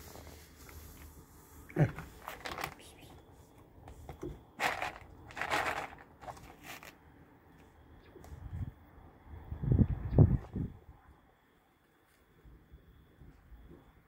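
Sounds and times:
cat kibble rattling in plastic tub: 2.0s - 3.2s, 4.2s - 7.0s.

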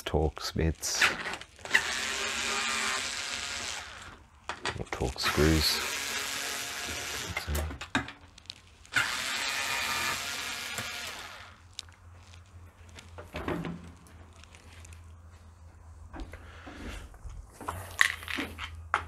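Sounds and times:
cordless drill running: 1.6s - 4.2s, 5.2s - 7.6s, 8.9s - 11.6s.

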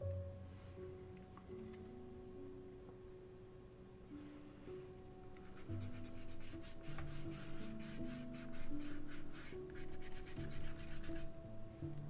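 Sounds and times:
soft background music: 0.0s - 12.0s
pencil scribbling on paper: 5.4s - 11.3s.

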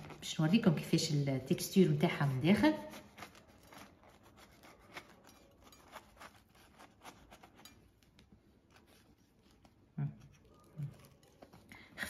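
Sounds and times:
knife cutting soft bread: 2.7s - 11.6s.

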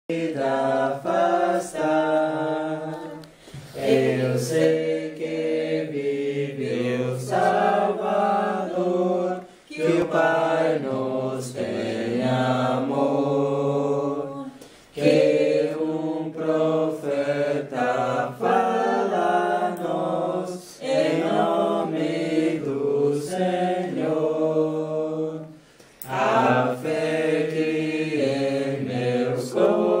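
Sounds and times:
congregation singing a hymn: 0.1s - 30.0s.

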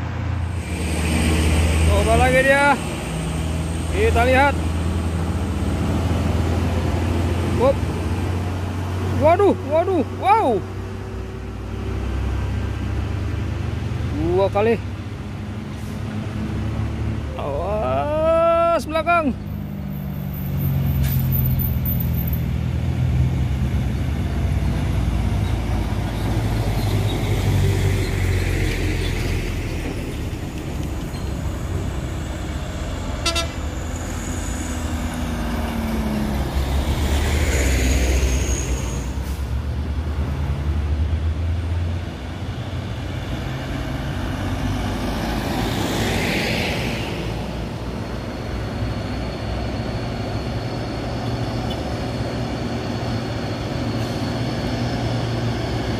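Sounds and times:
truck diesel engine labouring: 0.0s - 55.9s
hissing bursts from traffic: 0.4s - 3.2s.

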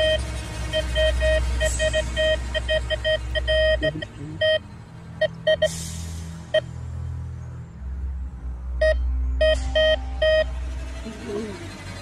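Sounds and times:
metal detector beeping: 8.8s - 10.5s.

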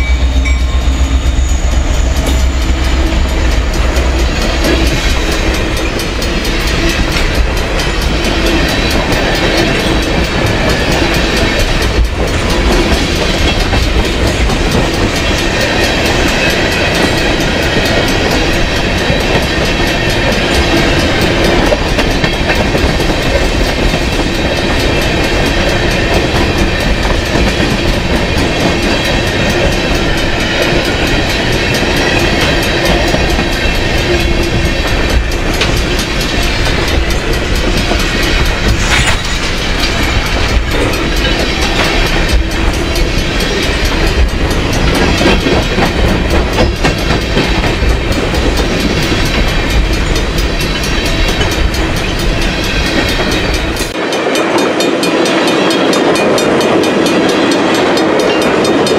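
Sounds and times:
train wheels rumbling on rails: 0.0s - 58.9s
wheels clickety-clack: 2.0s - 58.9s.

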